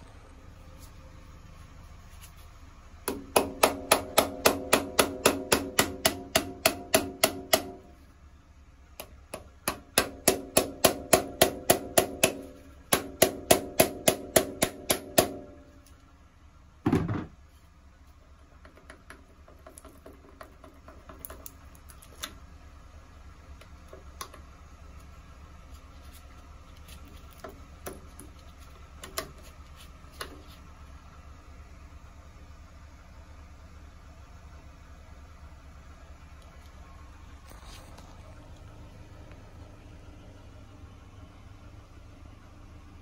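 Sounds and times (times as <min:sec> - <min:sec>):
dull metal clunk: 0:16.8 - 0:17.4.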